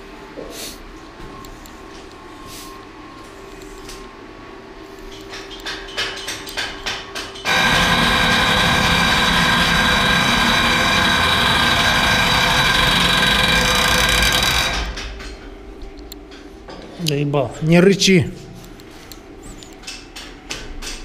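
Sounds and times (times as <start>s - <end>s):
electric pump whirring: 7.4s - 15.2s.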